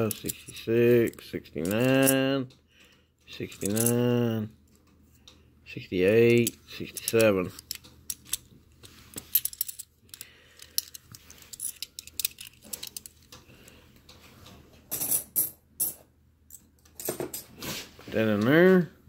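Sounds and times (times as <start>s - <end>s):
coins clinking in hands: 3.4s - 4.2s.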